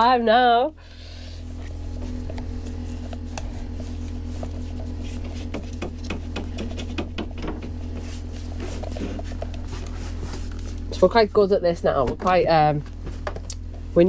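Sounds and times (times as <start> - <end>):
low hum: 0.0 - 14.0
stir stick scraping in plastic cup: 1.6 - 7.0.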